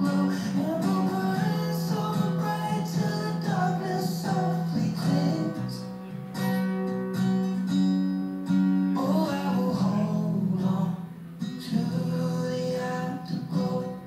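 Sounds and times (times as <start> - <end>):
song on radio: 0.0 - 6.0, 8.9 - 14.0
strummed acoustic guitar: 0.0 - 14.0.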